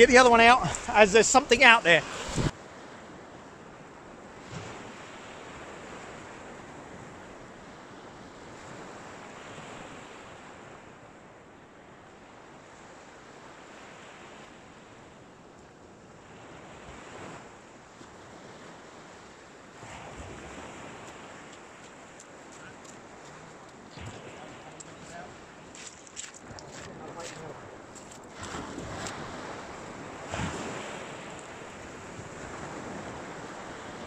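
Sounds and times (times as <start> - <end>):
small waves breaking on beach: 0.0 - 34.0
footsteps on shingle: 21.1 - 29.2.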